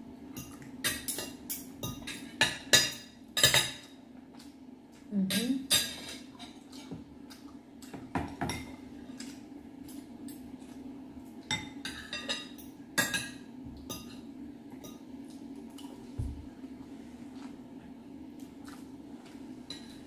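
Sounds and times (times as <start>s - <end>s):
cutlery clinking on ceramic bowls: 0.4s - 3.9s, 5.3s - 7.0s, 11.5s - 15.1s, 19.6s - 20.0s.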